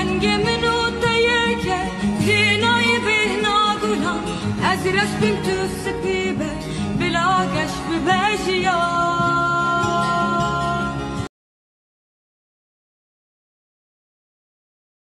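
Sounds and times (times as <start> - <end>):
song with sung melody: 0.0 - 11.3.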